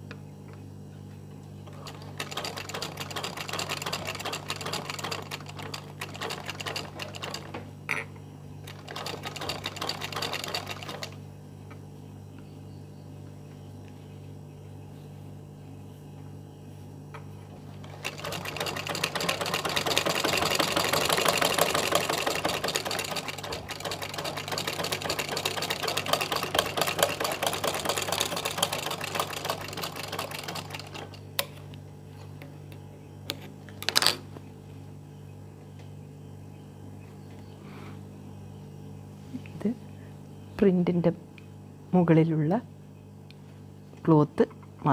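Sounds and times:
sewing machine stitching: 1.7s - 7.6s, 8.7s - 11.2s, 17.8s - 31.2s.

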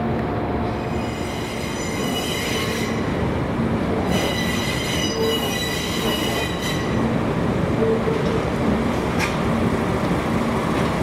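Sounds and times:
train wheels squealing on rails: 0.7s - 3.2s, 4.0s - 7.2s.

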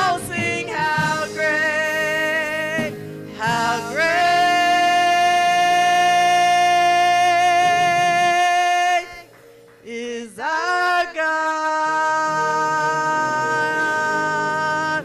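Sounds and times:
church worship singing: 0.0s - 15.0s.

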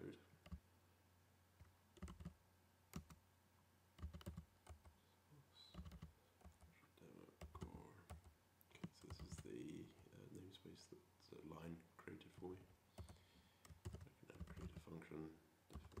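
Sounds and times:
keyboard typing: 0.4s - 0.6s, 1.6s - 3.2s, 4.0s - 5.0s, 5.7s - 6.7s, 7.4s - 9.5s, 12.4s - 15.0s, 15.7s - 16.0s.

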